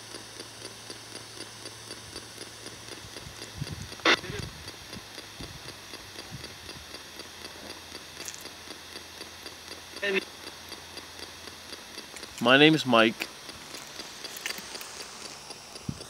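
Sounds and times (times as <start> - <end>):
radio hiss and hum: 0.0 - 6.6, 9.9 - 16.0
faint even clicks: 0.0 - 16.0
loud static burst: 4.0 - 4.5, 10.0 - 10.2, 12.3 - 16.0.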